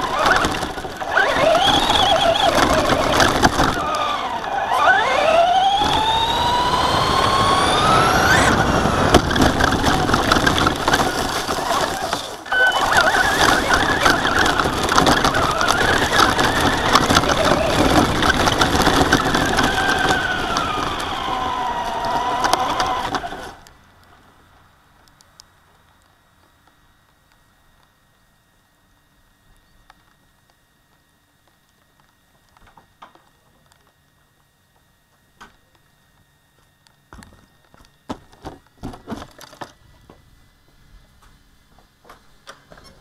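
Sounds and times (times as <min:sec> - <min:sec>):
tyres rattling on pavement: 0:00.0 - 0:23.6
electric motor whining: 0:00.0 - 0:23.7.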